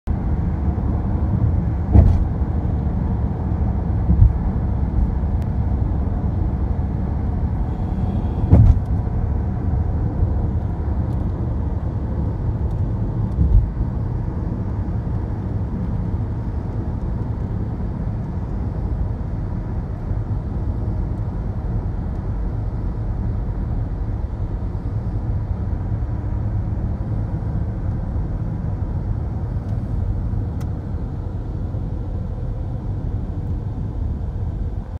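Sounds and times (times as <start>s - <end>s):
car interior road rumble: 0.1s - 34.9s
short thumps: 1.9s - 2.3s, 4.0s - 4.4s, 8.5s - 8.9s.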